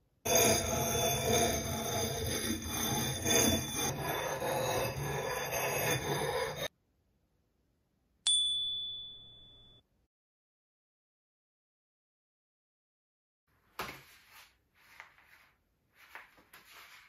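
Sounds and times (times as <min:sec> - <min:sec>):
sharpening stone rasping on blade: 0:00.3 - 0:06.7
high metallic ding: 0:08.3 - 0:09.8.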